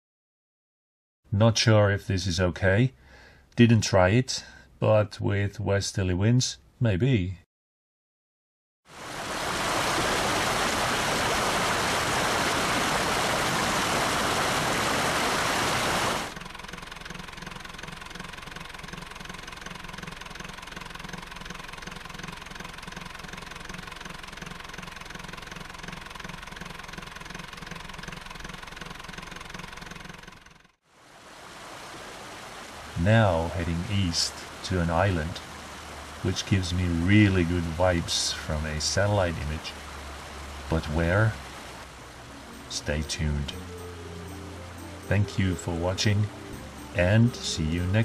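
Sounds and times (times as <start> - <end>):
boat engine running: 9.0 - 30.8, 32.2 - 48.0.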